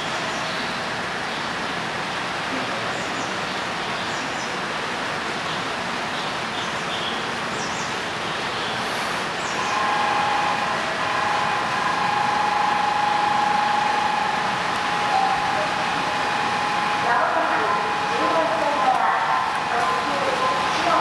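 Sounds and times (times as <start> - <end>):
train rushing noise: 7.3 - 21.0
high-pitched electric whine: 9.6 - 21.0.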